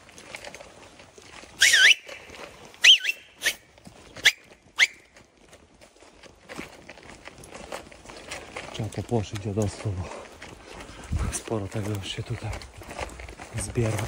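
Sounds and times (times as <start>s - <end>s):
person whistling loudly: 1.6s - 2.2s, 2.8s - 3.6s, 4.2s - 5.0s.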